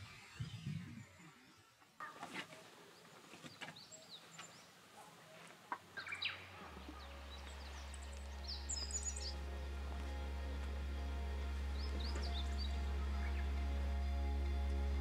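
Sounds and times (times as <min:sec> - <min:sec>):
birds chirping: 0:00.0 - 0:15.0
low musical drone: 0:06.0 - 0:15.0.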